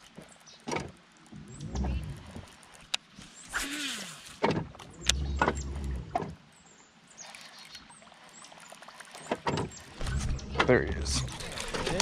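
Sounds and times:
reel being reeled in: 7.1s - 12.0s
low rumble: 10.0s - 12.0s.

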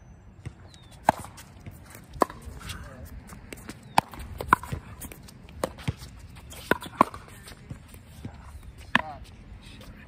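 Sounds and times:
ball bouncing on hard court: 0.4s - 2.7s, 3.3s - 9.2s
paddles striking pickleball: 1.0s - 7.9s.

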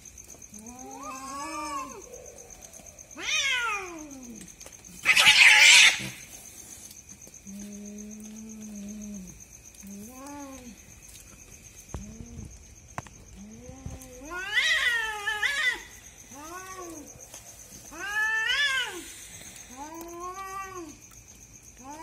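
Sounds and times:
cats yowling: 0.5s - 6.3s, 13.4s - 21.1s.

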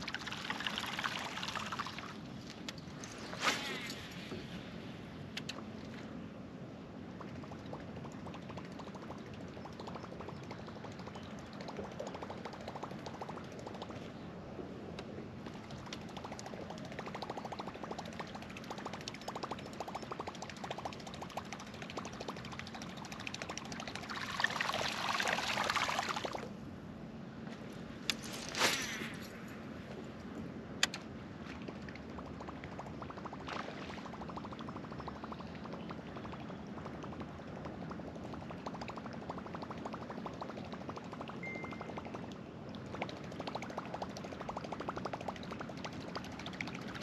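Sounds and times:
rushing swish: 3.2s - 4.4s
sharp clicks: 30.8s - 31.1s.

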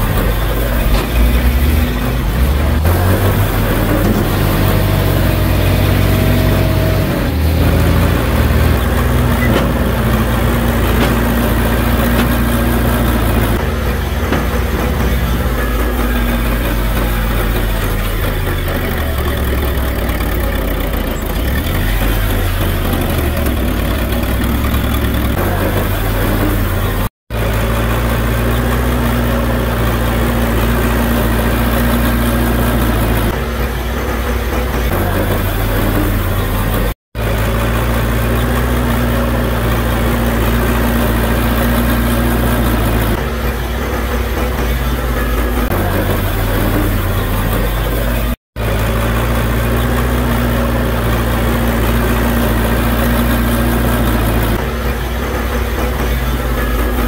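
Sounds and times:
bulldozer diesel engine running: 0.0s - 57.0s.

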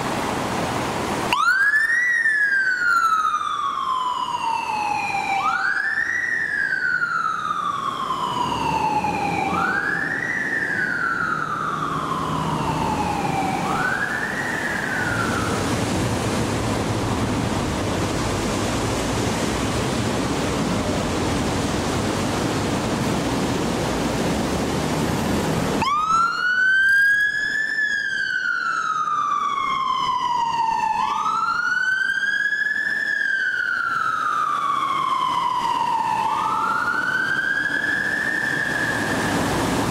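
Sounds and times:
fire engine siren wailing: 1.2s - 39.9s
van siren wailing: 1.2s - 39.9s
steady rumbling noise: 7.5s - 25.8s.

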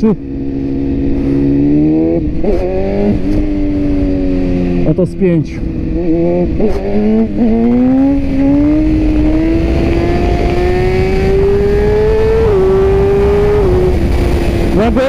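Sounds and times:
motorcycle engine at full throttle: 0.0s - 15.0s
wind rushing past microphone: 5.6s - 15.0s.

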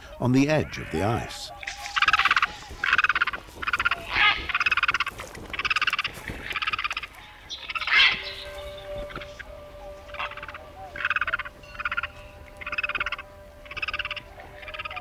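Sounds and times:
eagles chattering calls: 0.0s - 15.0s.

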